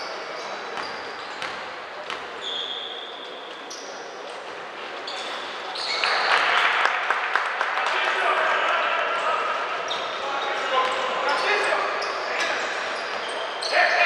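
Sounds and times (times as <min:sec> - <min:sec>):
crowd chatter: 0:00.0 - 0:14.0
short high squeaks: 0:02.4 - 0:03.9.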